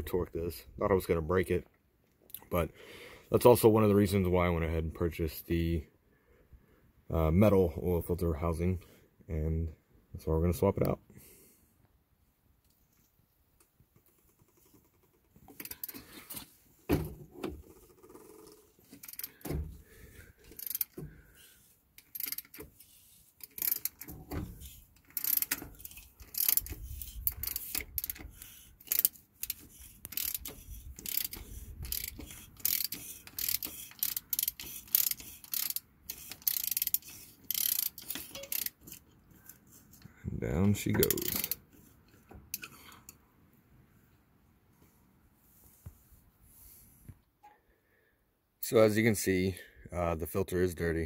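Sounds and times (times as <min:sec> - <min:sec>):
ratchet clicking: 0:14.0 - 0:16.1, 0:17.6 - 0:19.6, 0:20.4 - 0:39.6, 0:41.0 - 0:41.6
metal rattles: 0:16.9 - 0:21.2.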